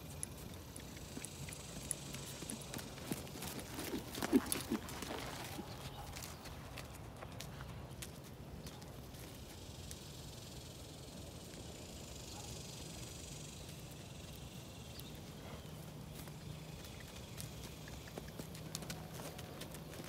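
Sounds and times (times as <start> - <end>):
horse hoofbeats on sand: 2.2 - 8.3, 16.1 - 20.0.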